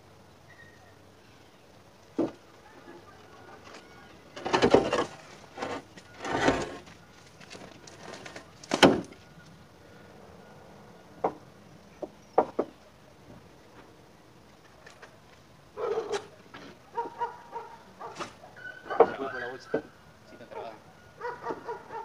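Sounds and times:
concrete grating scrapes: 3.6s - 8.6s.

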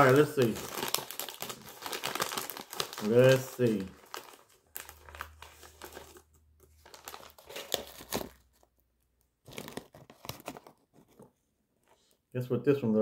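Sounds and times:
snack bag crinkling: 0.0s - 8.7s, 9.4s - 10.8s.

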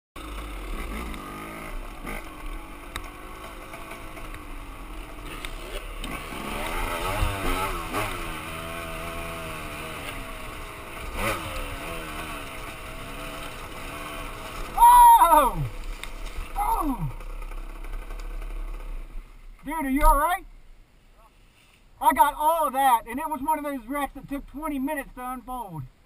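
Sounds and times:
dirt bike engine revving: 0.2s - 20.2s.

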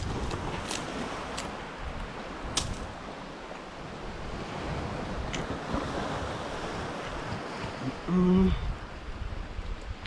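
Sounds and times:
surf washing on pebbles: 0.0s - 8.1s
wind on microphone: 0.0s - 10.0s.

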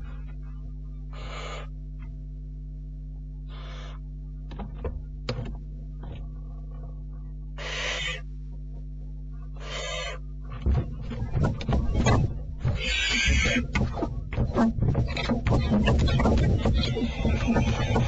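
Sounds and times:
steady electrical hum: 0.0s - 18.0s
owlet hissing snore calls: 1.1s - 1.7s, 3.5s - 4.0s, 7.6s - 8.2s, 9.6s - 10.2s.

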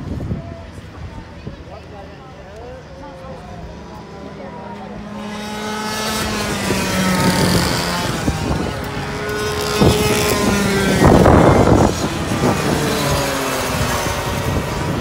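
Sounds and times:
loud rush of noise: 3.2s - 15.0s
kart engines revving past: 3.3s - 15.0s.

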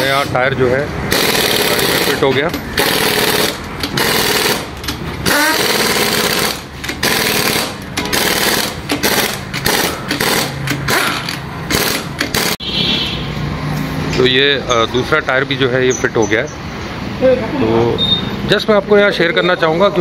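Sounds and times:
pneumatic impact wrench hammering: 1.1s - 12.6s.

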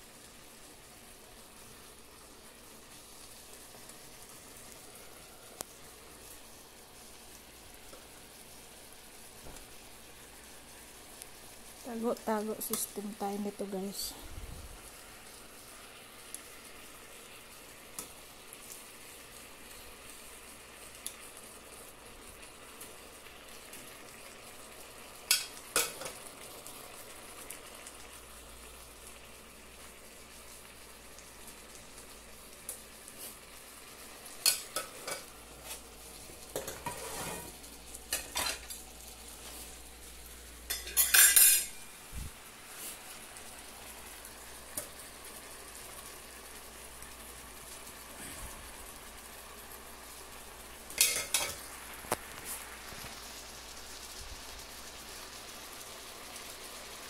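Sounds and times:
chicken sizzling in a skillet: 0.0s - 57.0s
metal tongs clicking on a pan: 12.6s - 12.9s, 18.0s - 18.2s, 25.3s - 26.2s, 34.4s - 35.3s, 40.7s - 41.8s, 51.0s - 51.6s.

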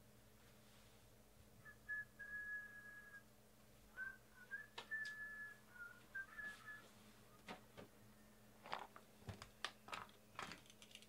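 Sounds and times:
person whistling: 1.6s - 3.2s, 3.9s - 7.0s.

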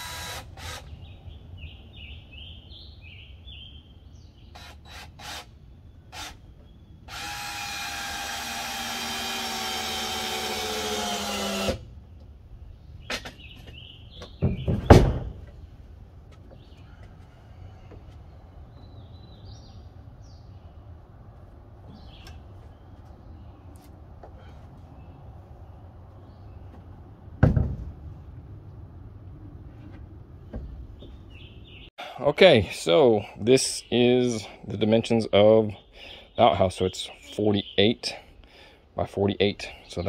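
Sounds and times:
power drill driving screw into wood: 0.0s - 0.9s, 4.6s - 5.5s, 7.1s - 11.8s
birds chirping: 0.1s - 27.0s, 30.4s - 40.0s
heavy thump: 14.4s - 15.6s, 27.4s - 28.0s.

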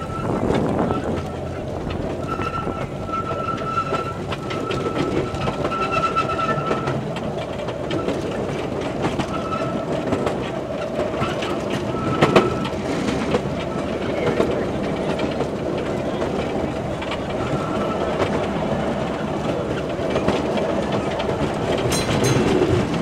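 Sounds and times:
high wheel squeal: 0.0s - 7.1s, 9.1s - 10.0s, 11.2s - 14.6s, 17.3s - 18.4s
train rumbling on track: 0.0s - 23.0s
wheels clacking over rail joints: 0.0s - 23.0s.

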